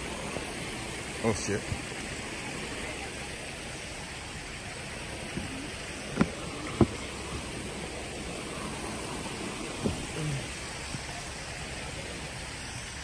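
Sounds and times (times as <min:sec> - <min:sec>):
creek water running over rocks: 0:00.0 - 0:13.0
sharp thumps: 0:05.2 - 0:07.6.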